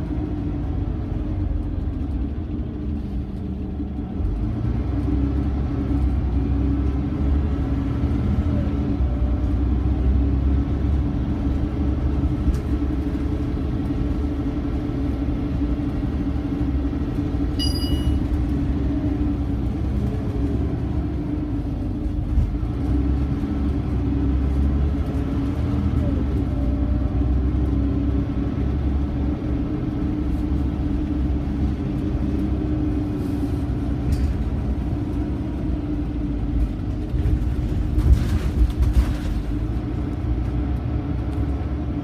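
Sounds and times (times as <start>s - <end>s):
bus diesel engine drone: 0.0s - 42.0s
road rumble: 0.0s - 42.0s
high-pitched beep: 17.6s - 18.2s.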